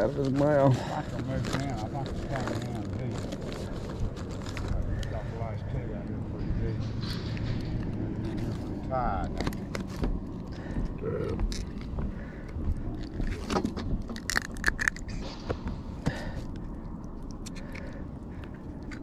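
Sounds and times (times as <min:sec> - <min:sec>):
pliers clicking and scraping: 0:16.4 - 0:19.0.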